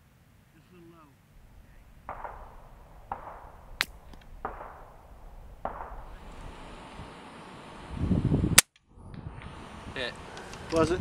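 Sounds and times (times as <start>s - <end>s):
suppressed rifle cracks: 1.4s - 6.8s
low rumble: 1.4s - 7.1s.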